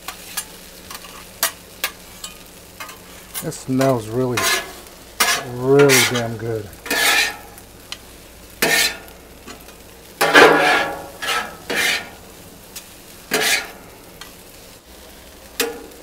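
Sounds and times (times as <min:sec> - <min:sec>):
low steady sizzle: 0:00.0 - 0:16.0
metal spatulas scraping griddle: 0:00.1 - 0:07.6, 0:08.6 - 0:09.1, 0:10.2 - 0:12.2, 0:13.3 - 0:13.8.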